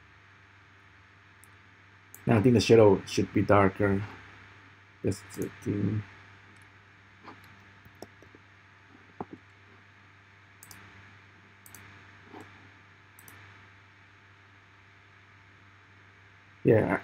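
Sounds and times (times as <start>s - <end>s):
low steady hum: 0.0s - 17.0s
mouse and keyboard clicks: 10.6s - 10.9s, 11.6s - 12.5s, 13.2s - 13.4s.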